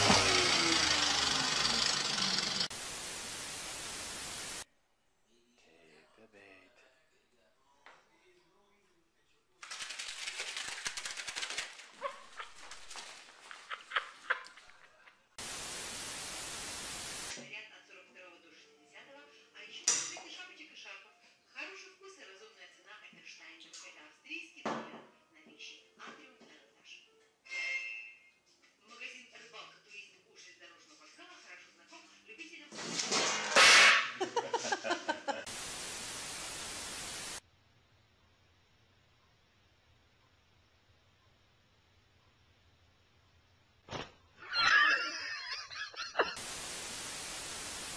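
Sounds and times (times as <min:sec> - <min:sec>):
tv static hiss: 0:02.6 - 0:04.7, 0:15.4 - 0:17.4, 0:34.4 - 0:37.5, 0:45.6 - 0:47.9.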